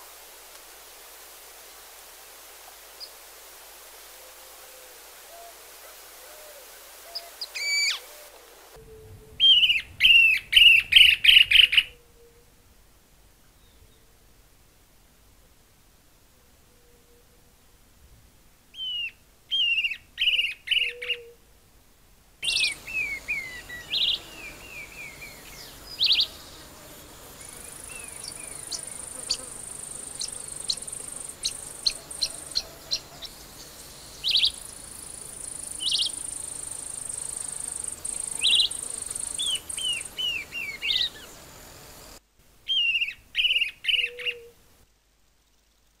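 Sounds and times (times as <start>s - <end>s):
hissy background: 0.0s - 46.0s
bird singing whistled notes: 7.1s - 8.0s, 8.8s - 12.3s, 18.8s - 21.4s, 22.4s - 26.6s, 27.4s - 41.4s, 42.7s - 44.5s
high insect buzz: 22.4s - 42.2s.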